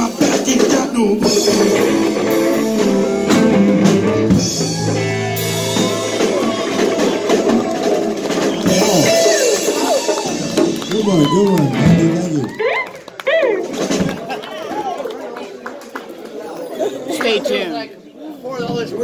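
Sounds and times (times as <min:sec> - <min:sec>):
live rock band playing: 0:00.0 - 0:14.3
congas: 0:00.0 - 0:14.4.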